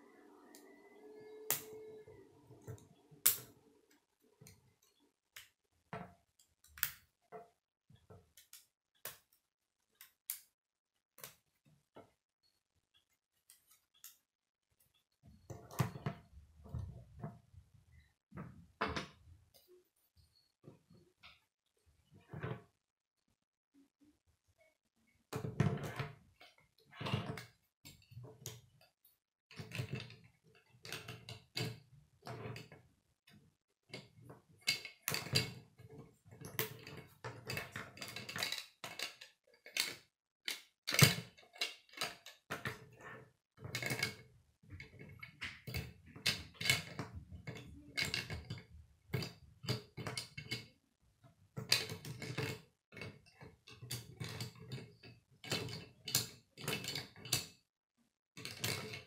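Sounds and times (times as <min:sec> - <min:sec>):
plastic pieces clicking and clattering: 0:36.4 - 0:43.0, 0:44.8 - 0:50.7, 0:58.4 - 0:59.0.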